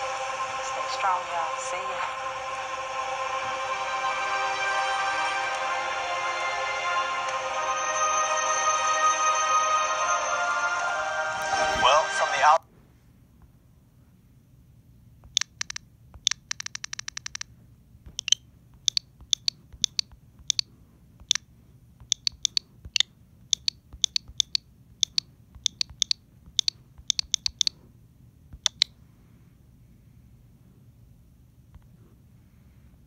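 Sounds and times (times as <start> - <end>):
sharp high clicks: 15.3 - 17.5, 18.1 - 27.8, 28.6 - 28.9.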